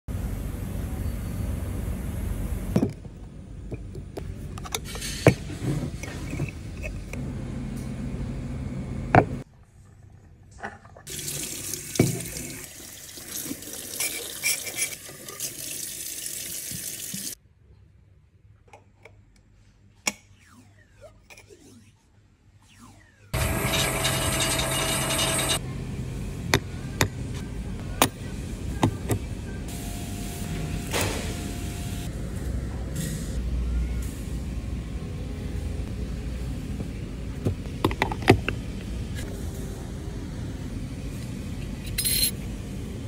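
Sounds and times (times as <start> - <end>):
tap water running into sink: 11.1 - 17.4.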